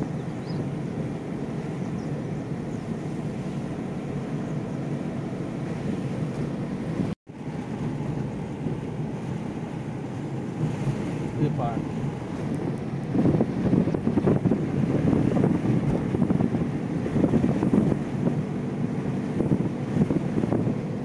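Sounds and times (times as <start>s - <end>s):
car engine and road noise: 0.0s - 21.0s
wind on microphone: 10.2s - 21.0s.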